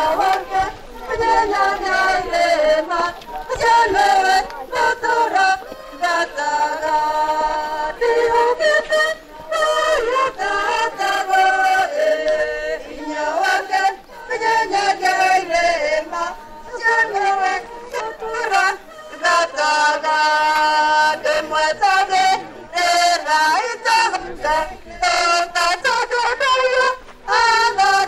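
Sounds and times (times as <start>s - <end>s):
choir singing slow song: 0.0s - 28.0s.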